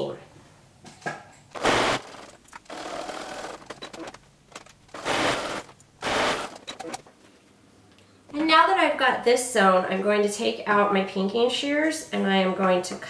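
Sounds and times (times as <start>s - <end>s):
electric sewing machine stitching: 1.6s - 4.2s, 4.8s - 7.0s.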